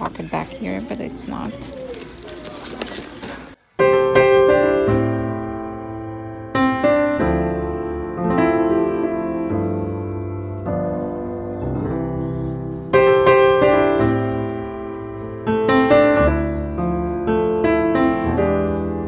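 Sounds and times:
piano chords ringing: 3.8 - 19.0.

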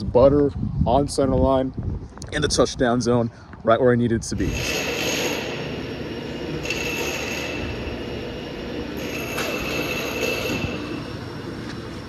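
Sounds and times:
thin high whine: 4.4 - 12.0
workshop machinery running: 4.4 - 12.0.

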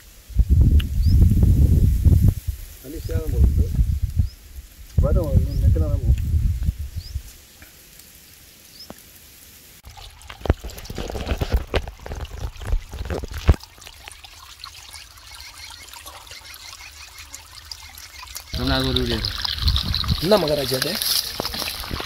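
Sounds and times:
muddy water trickling: 2.3 - 22.0
irregular water splashes: 9.8 - 22.0.

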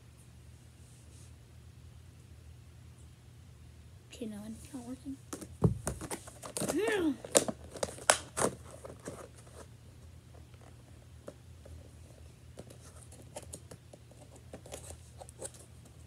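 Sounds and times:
steady low hum: 0.0 - 16.0
plastic blister pack clicks and crinkles: 6.3 - 9.3.

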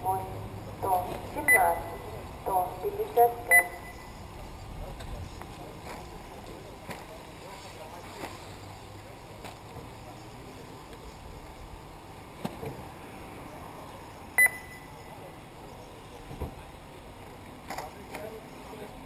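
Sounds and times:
short electronic beep: 3.5 - 4.2, 14.4 - 15.1.

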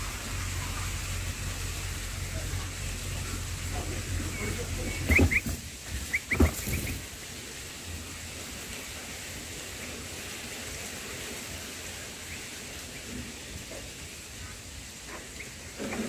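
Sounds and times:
faint steady hiss: 0.0 - 16.0
dull thumps: 5.0 - 7.0.

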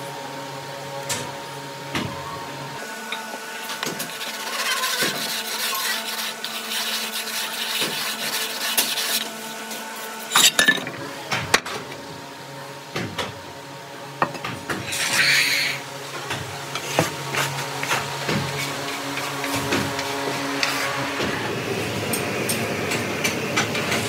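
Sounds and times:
trowel scraping damp sand: 3.9 - 9.4
metal tools clinking: 10.3 - 11.0.

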